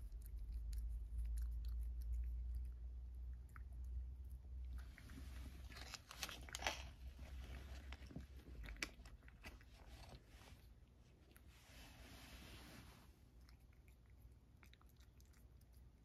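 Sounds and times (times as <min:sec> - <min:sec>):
cat crunching dry treat: 0:04.7 - 0:11.4.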